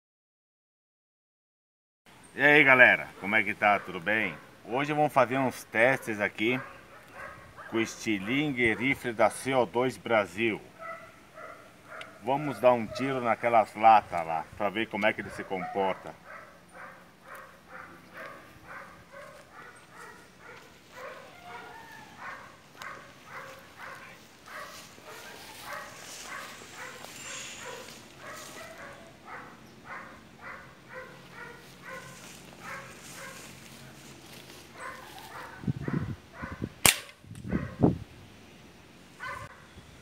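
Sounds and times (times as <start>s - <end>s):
dog barking: 3.1s - 4.6s, 5.8s - 9.0s, 10.8s - 13.2s, 15.2s - 33.5s, 34.7s - 36.7s, 37.5s - 37.8s, 39.2s - 39.7s.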